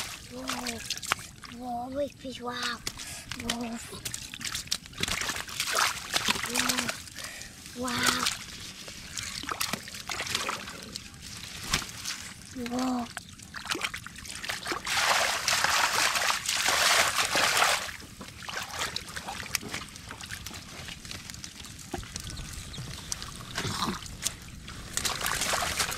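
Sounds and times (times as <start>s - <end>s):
muddy water splashing: 0.0s - 25.9s
small drips: 0.0s - 25.9s.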